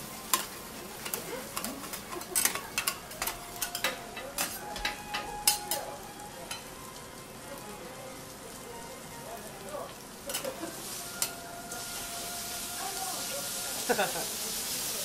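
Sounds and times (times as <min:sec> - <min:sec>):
food sizzling on a griddle: 0:00.0 - 0:15.0
metal spatulas clacking and scraping: 0:00.3 - 0:05.8, 0:10.3 - 0:10.6.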